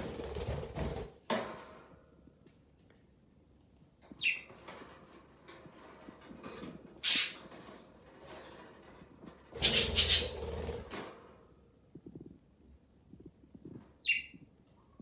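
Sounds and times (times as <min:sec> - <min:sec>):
wire cage rattling and scraping: 0:04.5 - 0:11.6
budgies fluttering wings: 0:09.6 - 0:10.9.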